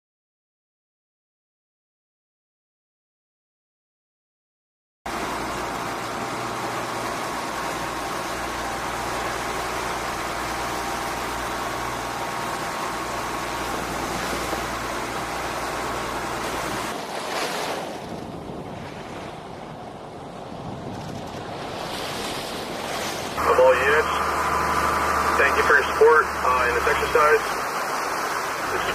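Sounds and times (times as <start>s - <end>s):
boat motor humming: 5.1s - 28.9s
waves and water rushing: 5.1s - 28.9s
wind: 5.1s - 28.9s.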